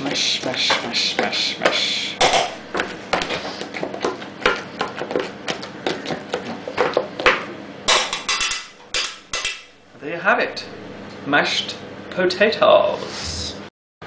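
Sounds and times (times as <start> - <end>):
potato masher knocking on pan: 0.1 - 9.7.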